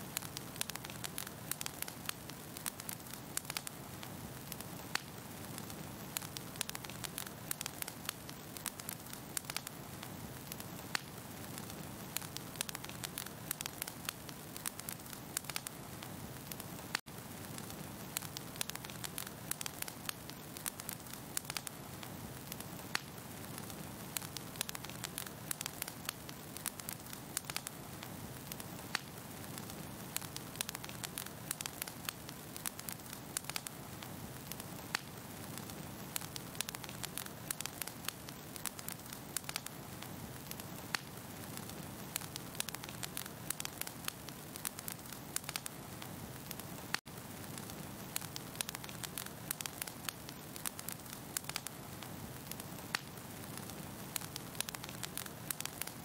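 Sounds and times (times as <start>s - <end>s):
fire crackling: 0.0s - 56.0s.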